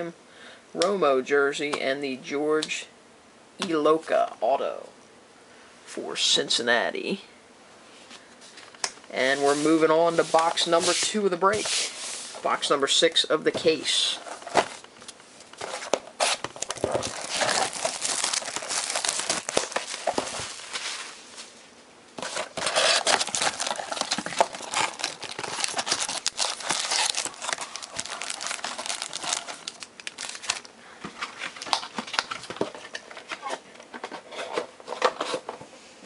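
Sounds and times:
plastic and foil wrapping crinkling: 15.6 - 21.4, 22.2 - 33.6.

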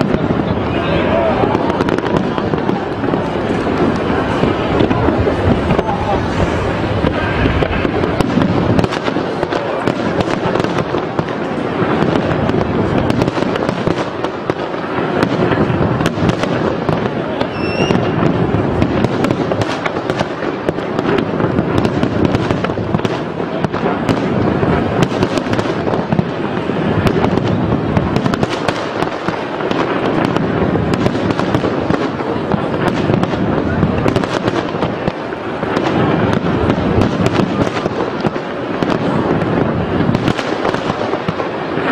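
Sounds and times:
fireworks bangs: 0.0 - 41.9
fireworks crackle: 0.0 - 41.9.

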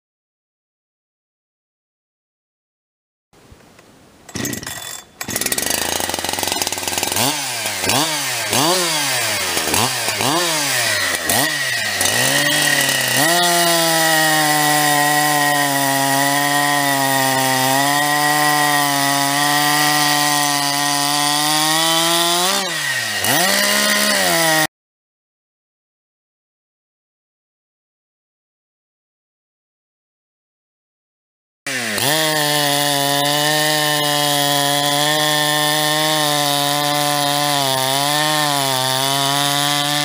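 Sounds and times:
chainsaw cutting log: 4.3 - 24.7, 31.7 - 40.0
chainsaw revving: 4.3 - 24.7, 31.7 - 40.0.

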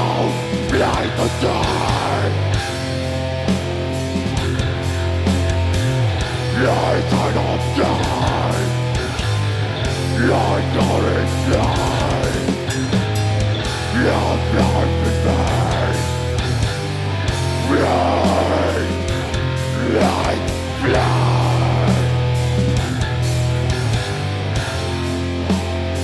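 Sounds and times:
harsh vocals: 0.0 - 3.3, 5.5 - 24.7
distorted electric guitars and bass: 0.0 - 26.0
drums: 0.0 - 26.0.

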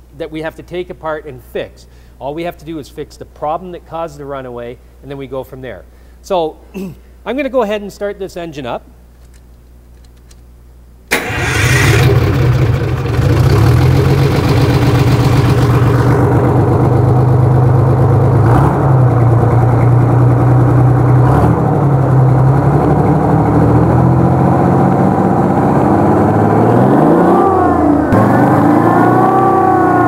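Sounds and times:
diesel engine starting and running: 11.1 - 30.0.

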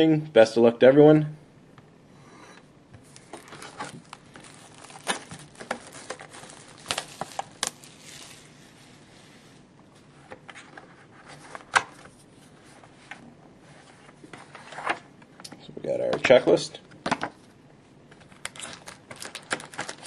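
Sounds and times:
shrink wrap crackling and tearing: 3.1 - 8.6, 18.3 - 20.0.

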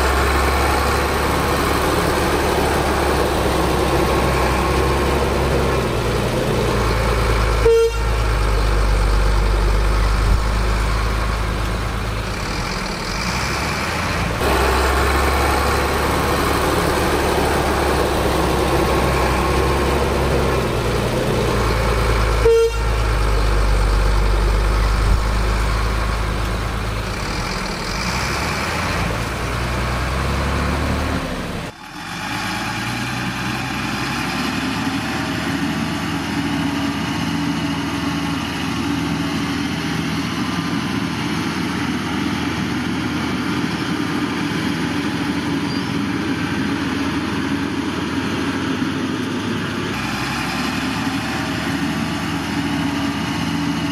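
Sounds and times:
diesel truck engines rumbling: 0.0 - 53.9
short horn toots: 7.6 - 8.2, 22.4 - 23.0.

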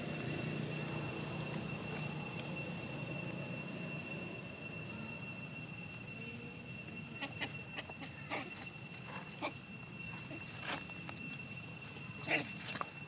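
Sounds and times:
high-pitched whine: 0.0 - 13.0
monkeys rustling in dry leaves: 7.2 - 13.0.

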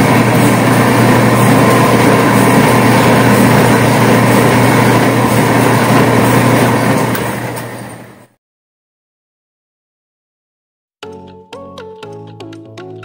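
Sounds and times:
electric motor humming and whirring: 0.0 - 8.2.

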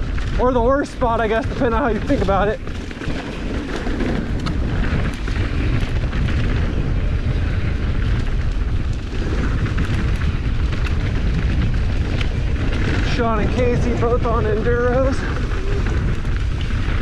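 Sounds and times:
bike clicks and rattles: 0.0 - 17.0
tyre noise on dirt: 0.0 - 17.0
wind buffeting: 0.0 - 17.0.

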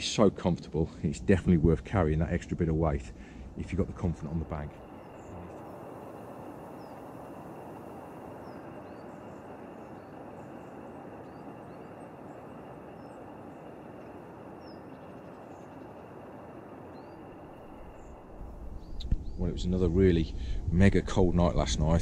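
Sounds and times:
small birds chirping: 3.1 - 20.4.

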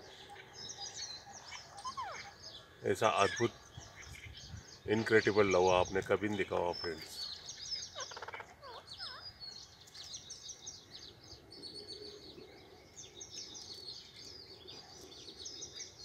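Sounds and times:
birds chirping and twittering: 0.0 - 16.0.

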